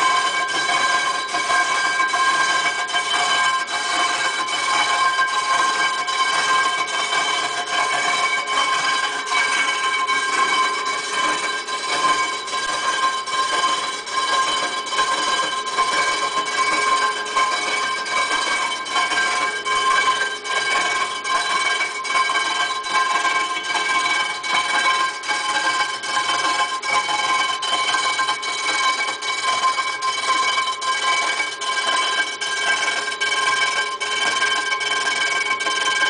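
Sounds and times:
metallic ringing of milling machine: 4.9s - 32.0s.

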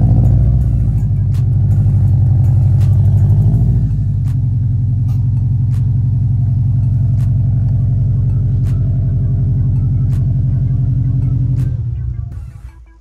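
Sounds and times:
car engine running: 0.0s - 13.0s.

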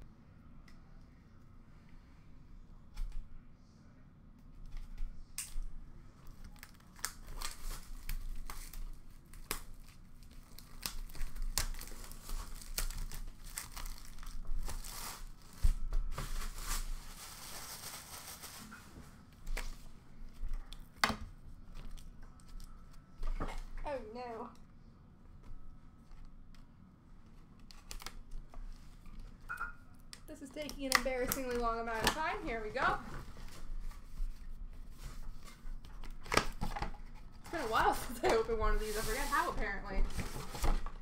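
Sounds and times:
plastic shrink wrap tearing: 6.3s - 18.9s.

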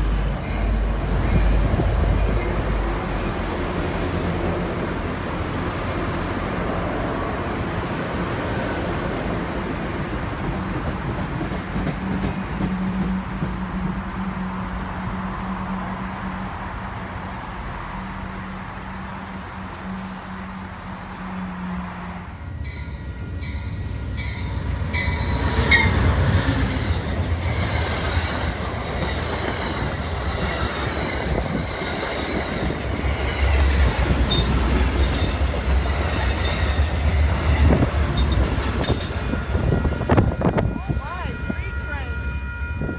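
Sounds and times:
train moving with steady hum: 0.0s - 42.9s
train wheels clattering over rails: 24.5s - 39.4s.

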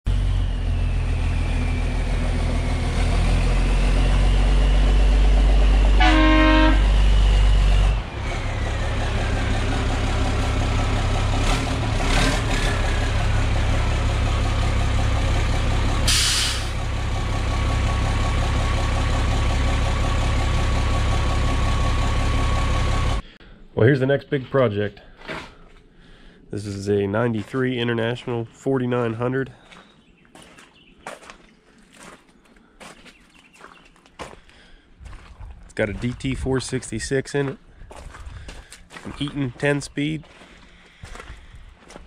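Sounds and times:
diesel truck engine running: 0.1s - 23.4s, 35.0s - 42.0s
truck horn toot: 5.9s - 7.2s
air brake hiss: 16.1s - 16.8s.

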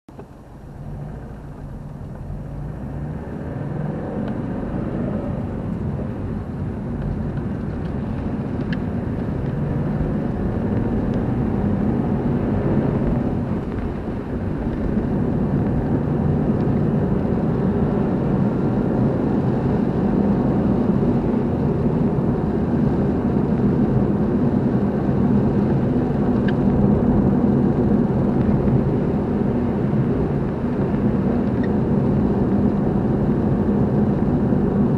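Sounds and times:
car engine hum: 0.1s - 34.9s
road noise: 0.1s - 34.9s.

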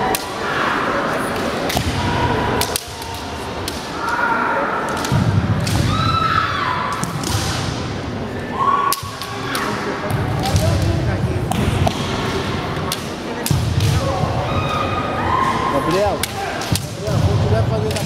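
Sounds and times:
chatter in sports hall: 0.0s - 18.0s
bamboo swords clacking: 2.6s - 4.2s.

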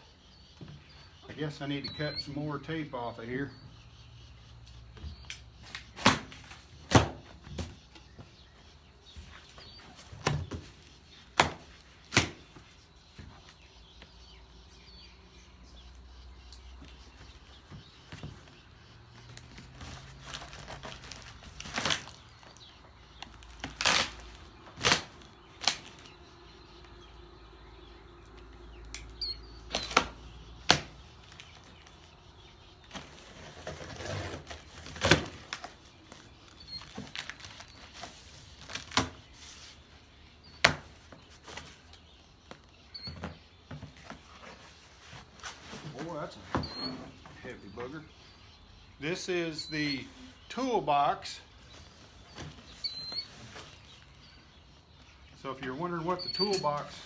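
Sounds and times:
cardboard flaps rustling: 16.8s - 26.2s, 32.8s - 47.4s
tape tearing: 19.4s - 22.6s, 23.2s - 26.1s, 29.7s - 31.7s, 32.9s - 39.2s.

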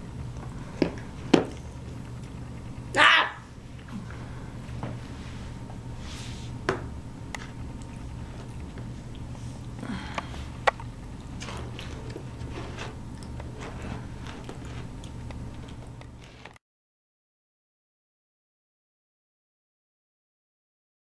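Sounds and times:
steady low hum: 0.0s - 16.6s
child chewing a cookie: 0.1s - 2.9s, 7.4s - 16.6s.

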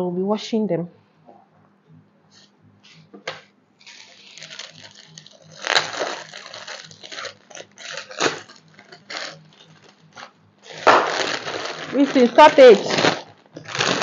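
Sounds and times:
plastic packaging crinkling: 3.8s - 14.0s.

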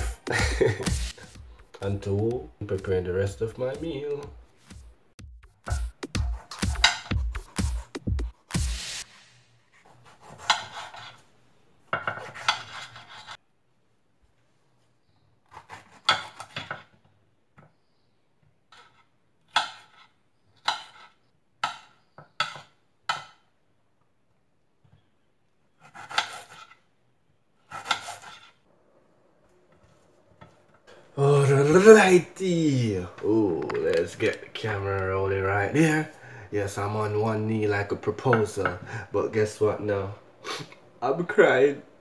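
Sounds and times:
knife cutting vegetables: 9.8s - 11.2s, 12.0s - 13.4s, 25.8s - 26.8s, 27.6s - 28.6s.

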